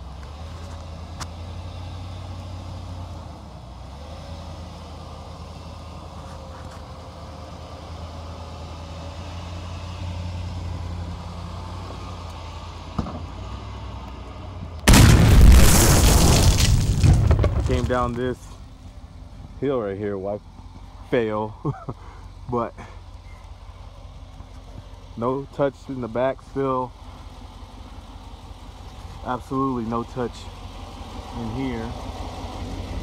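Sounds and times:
truck engine idling: 16.7s - 33.0s.

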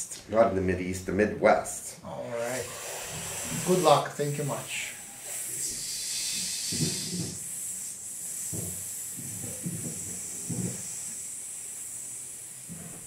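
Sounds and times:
high-pitched background hiss: 1.6s - 13.0s.

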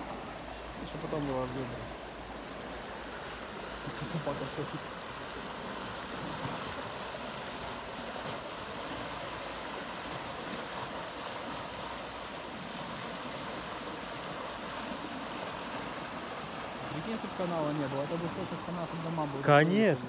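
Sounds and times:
floodwater rushing over ground: 0.0s - 20.0s.

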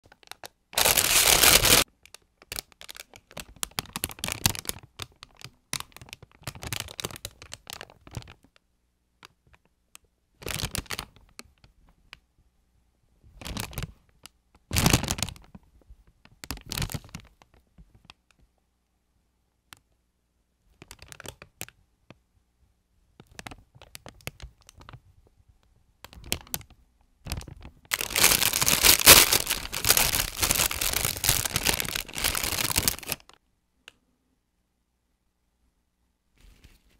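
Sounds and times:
plastic bag crinkling: 0.1s - 8.3s, 27.3s - 33.4s
plastic bag tearing: 0.8s - 1.8s, 27.3s - 33.3s.

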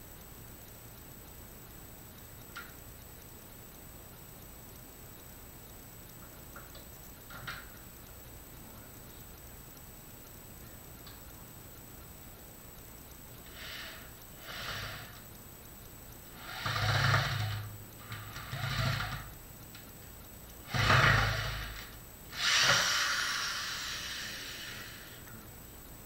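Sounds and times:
power tool running in bursts: 16.4s - 19.3s, 20.7s - 25.1s.

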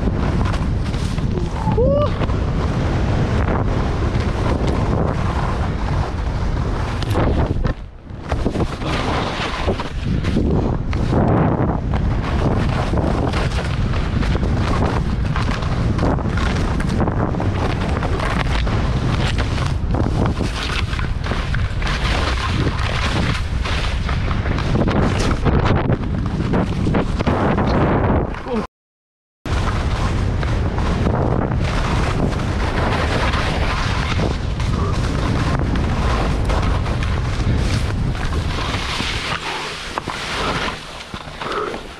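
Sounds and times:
skis scraping over snow: 0.0s - 28.2s, 29.5s - 41.9s
wind buffeting the microphone: 0.0s - 28.7s, 29.5s - 41.9s.

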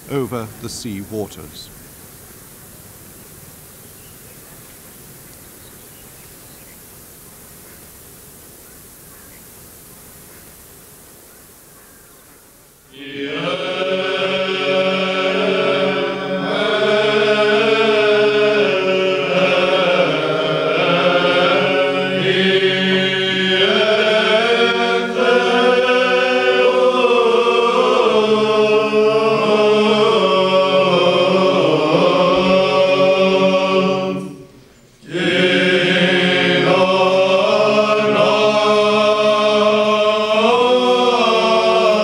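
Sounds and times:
men chanting with low drone: 12.9s - 42.0s.

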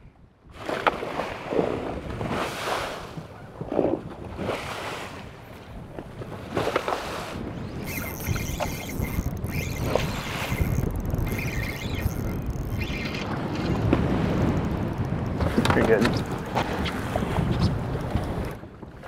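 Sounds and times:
wind buffeting microphone: 0.1s - 19.0s
water slapping boat hull: 0.6s - 19.0s
cloth rubbing microphone: 7.7s - 13.8s.

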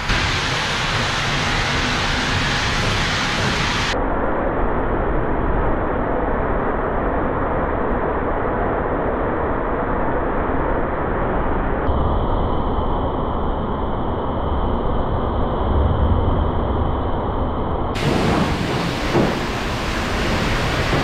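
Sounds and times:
high-pressure water spraying: 0.0s - 4.0s, 18.0s - 21.0s.

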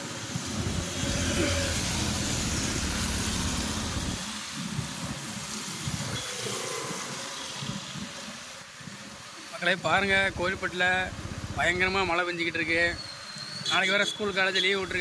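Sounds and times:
heavy rain: 0.0s - 14.2s
tyres hissing on wet road: 0.0s - 15.0s
low rumble: 0.5s - 4.4s.

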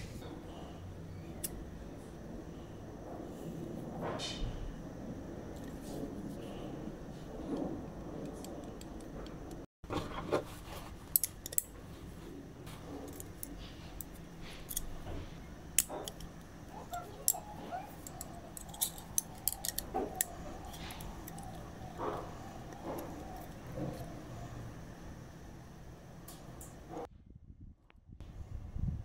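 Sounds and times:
metal clicks and clinks: 15.8s - 21.7s
steel scissor blades knocking: 15.8s - 24.2s.

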